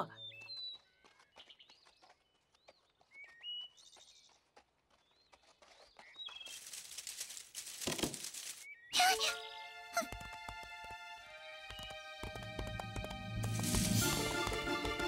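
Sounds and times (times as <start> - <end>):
birds chirping: 0.0 - 7.2, 8.5 - 9.8
rustling: 6.4 - 8.7.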